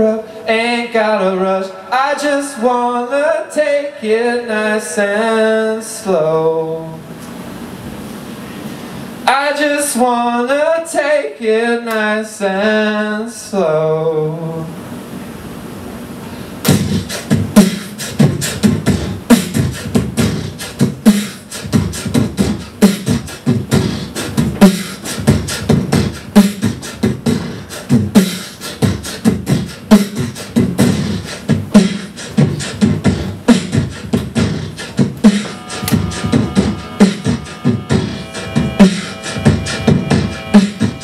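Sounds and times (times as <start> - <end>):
beatboxing mouth percussion: 16.6 - 41.0.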